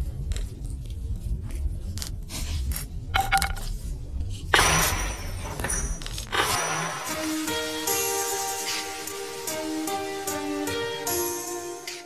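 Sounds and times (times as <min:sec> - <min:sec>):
low rumble: 0:00.0 - 0:06.3
crackles and clicks: 0:00.0 - 0:06.6
loud burst of hiss: 0:06.3 - 0:11.9.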